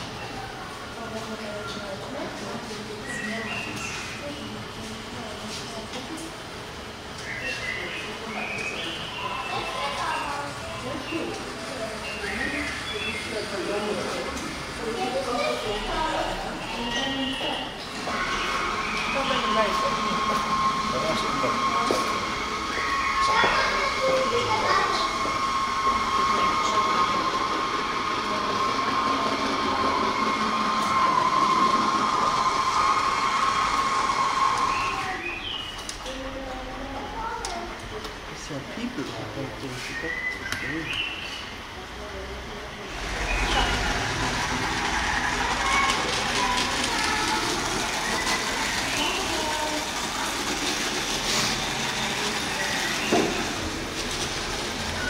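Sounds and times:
faint voices: 0:00.0 - 0:55.0
model train wheels rolling: 0:07.2 - 0:38.2, 0:42.7 - 0:55.0
electric motor whine: 0:18.0 - 0:35.1.

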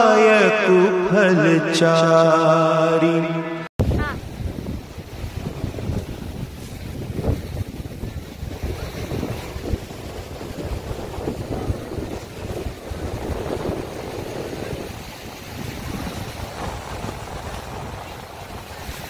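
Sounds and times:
sea surf: 0:02.8 - 0:19.0
wind buffeting microphone: 0:03.8 - 0:19.0.

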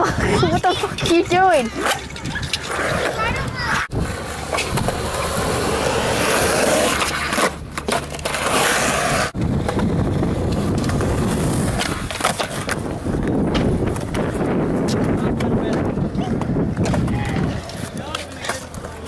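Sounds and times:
skateboard wheels rolling on concrete: 0:00.0 - 0:19.0
skateboard clacks: 0:09.3 - 0:19.0.

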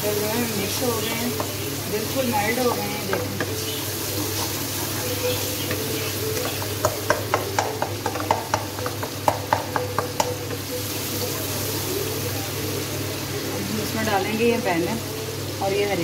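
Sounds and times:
tomatoes sizzling: 0:00.0 - 0:16.0
spoon tapping against pan: 0:01.0 - 0:01.7, 0:02.6 - 0:11.4.

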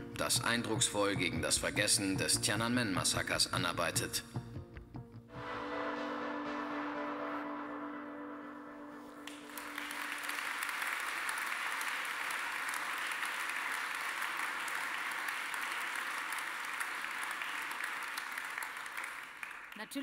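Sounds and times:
held musical chord: 0:05.3 - 0:10.3
audience applauding: 0:09.2 - 0:20.0.

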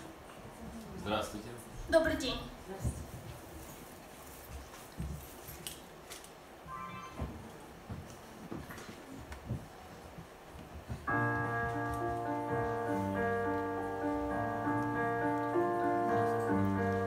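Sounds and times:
piano chords: 0:06.7 - 0:07.6, 0:11.1 - 0:17.0.

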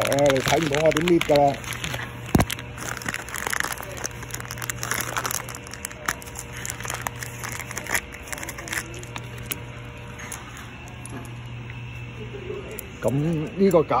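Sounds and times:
plastic bag crinkling: 0:00.0 - 0:11.1
steady low hum: 0:00.0 - 0:14.0.

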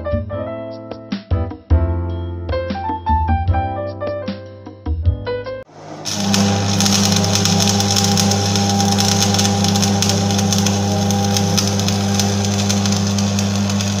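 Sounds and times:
low electrical hum: 0:05.7 - 0:14.0
welding arc crackling: 0:05.7 - 0:14.0.

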